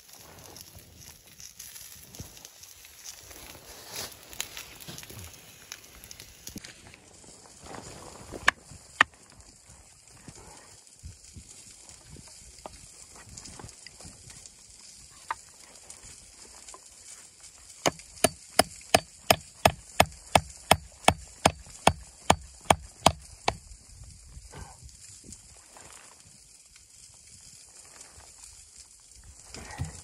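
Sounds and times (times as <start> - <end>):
hatchet chopping wooden plank: 17.8 - 23.6.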